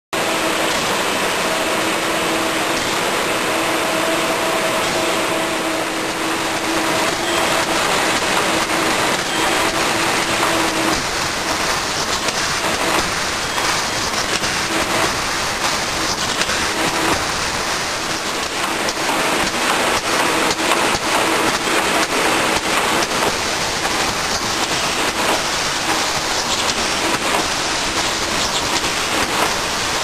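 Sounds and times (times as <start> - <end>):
shrink-wrapping machine running: 0.2 - 30.0
steady machine hum: 0.2 - 30.0.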